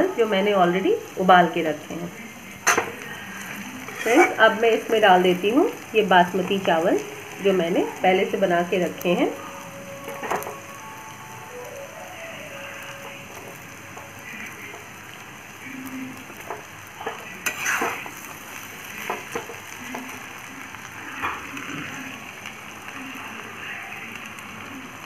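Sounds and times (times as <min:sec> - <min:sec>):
rice sizzling in a wok: 0:00.0 - 0:25.0
metal spatula scraping a pan: 0:02.6 - 0:04.6, 0:16.5 - 0:18.4.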